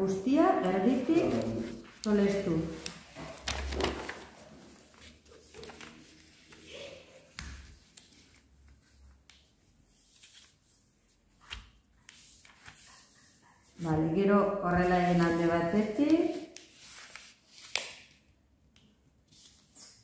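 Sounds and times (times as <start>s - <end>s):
paper folding and creasing: 0.6s - 13.4s, 16.2s - 18.2s, 19.2s - 20.0s.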